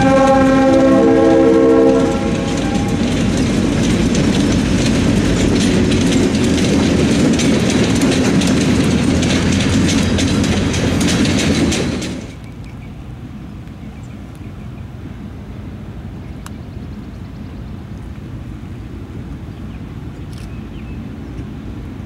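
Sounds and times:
wheels clicking over rail joints: 0:00.0 - 0:14.7
locomotive engine rumble: 0:00.0 - 0:22.0.

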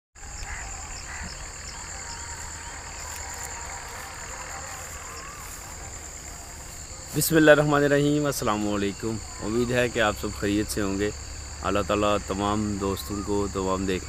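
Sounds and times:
insect chorus trilling: 0:00.2 - 0:14.0.

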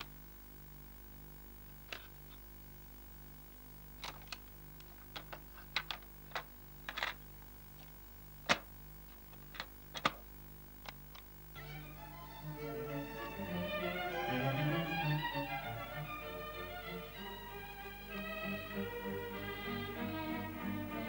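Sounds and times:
low steady hum: 0:00.0 - 0:21.0
cassette player controls clicking: 0:09.3 - 0:11.3.

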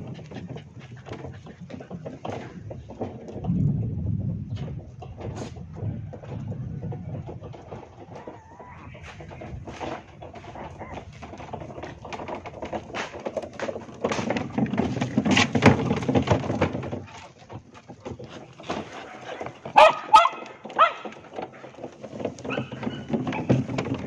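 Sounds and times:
knocking and rattling: 0:00.0 - 0:24.0
dog barking: 0:19.3 - 0:21.1.

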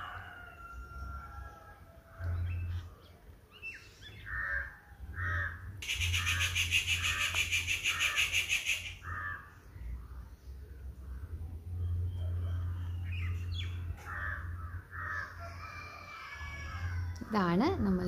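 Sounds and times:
crows cawing: 0:04.3 - 0:09.6, 0:14.0 - 0:17.0.

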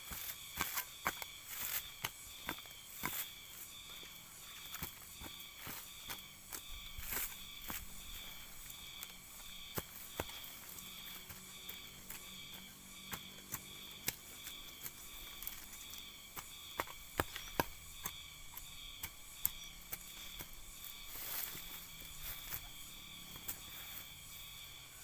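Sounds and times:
hand hoe crackling in dry mulch: 0:00.0 - 0:25.0
insects chirring: 0:00.0 - 0:25.0.

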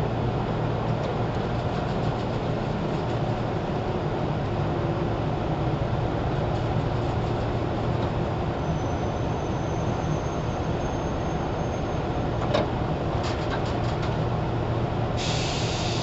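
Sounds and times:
train rumble with low hum: 0:00.0 - 0:16.0.

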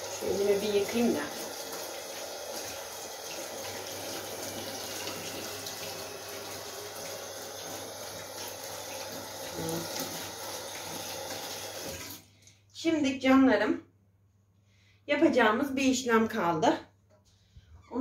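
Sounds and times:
tap running into sink: 0:00.8 - 0:12.2.

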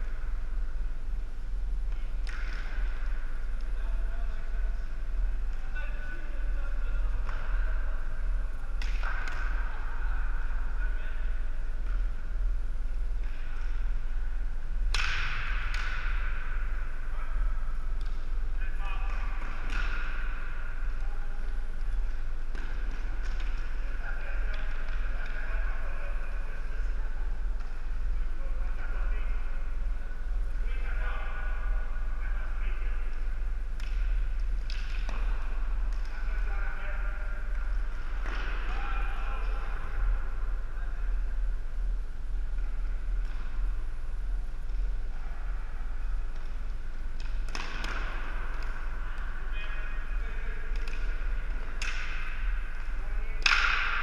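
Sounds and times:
low hum: 0:00.0 - 0:54.0
plastic sticks clacking ball: 0:53.4 - 0:54.0.

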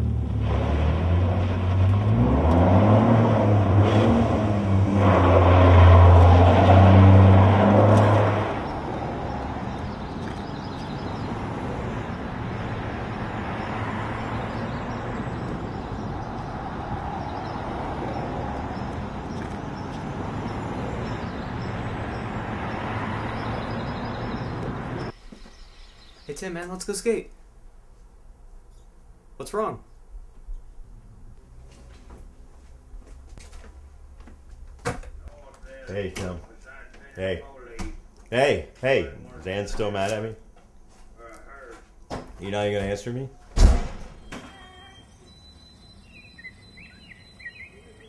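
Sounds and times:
vehicle engine revving: 0:00.0 - 0:25.2.

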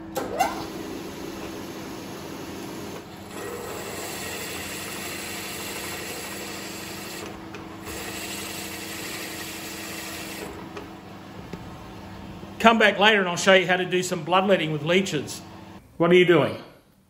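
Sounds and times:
milling machine hum: 0:00.1 - 0:12.6.

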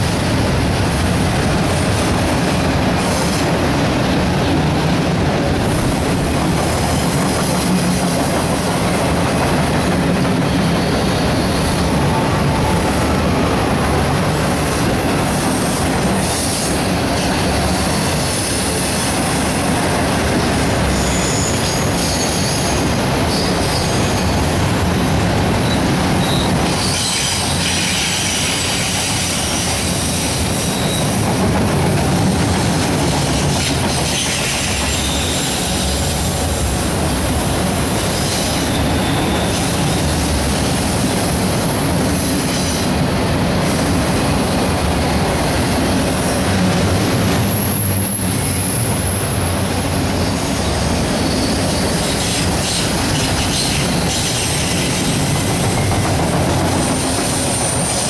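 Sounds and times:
train wheels rumbling on rail: 0:00.0 - 0:58.0
high-pitched wheel squeal: 0:10.4 - 0:11.9, 0:20.9 - 0:24.5, 0:34.1 - 0:36.1, 0:38.2 - 0:40.2, 0:51.2 - 0:56.1.

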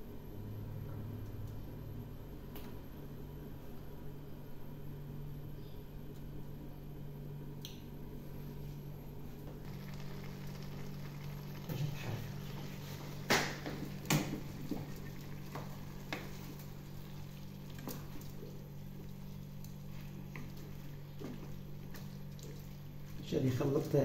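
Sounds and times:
steady low hum: 0:00.0 - 0:24.0
vegetables stirred in a pan: 0:09.6 - 0:22.8.

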